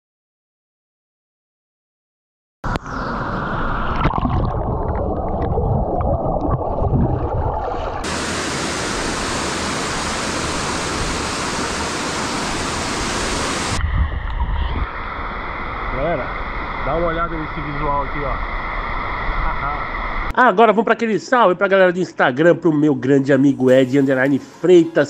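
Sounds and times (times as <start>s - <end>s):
waterfall rushing and splashing: 8.0s - 13.8s.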